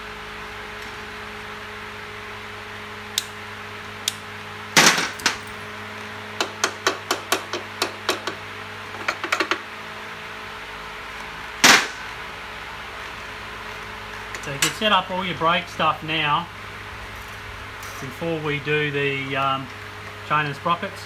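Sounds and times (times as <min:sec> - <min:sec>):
workshop hum: 0:00.0 - 0:21.0
tools clattering: 0:04.8 - 0:05.6.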